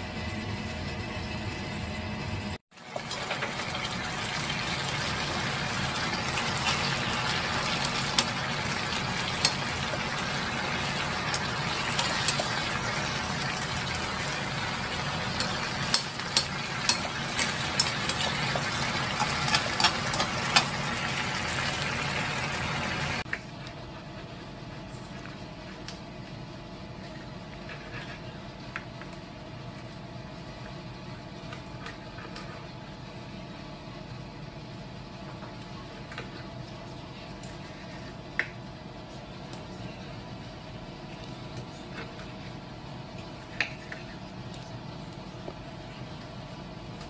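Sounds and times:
food sizzling in a frying pan: 2.8s - 23.2s.

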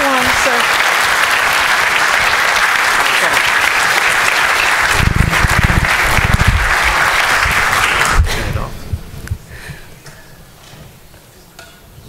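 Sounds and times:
audience clapping: 0.0s - 8.7s
low thuds and rumbling: 4.8s - 9.5s.

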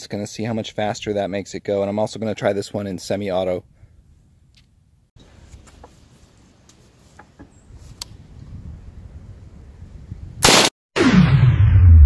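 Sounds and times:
low rumble: 11.0s - 12.0s.

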